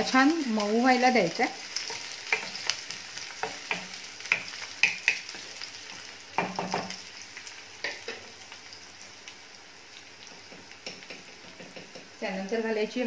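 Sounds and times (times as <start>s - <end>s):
onions sizzling in oil: 0.0s - 13.0s
spatula scraping and knocking pan: 1.8s - 7.0s, 10.4s - 12.2s.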